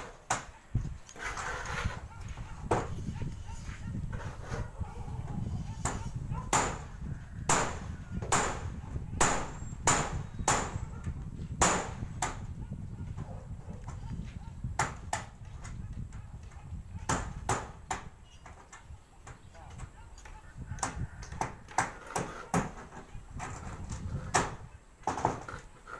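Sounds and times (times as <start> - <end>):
hammer striking metal roof sheet: 5.8 - 6.9, 7.5 - 10.8, 11.6 - 12.4.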